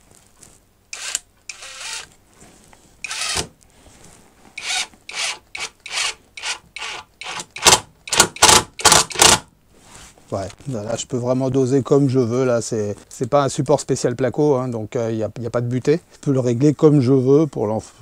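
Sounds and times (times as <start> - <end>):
impact driver bursts: 0.9 - 2.1, 3.0 - 3.5, 4.6 - 9.5.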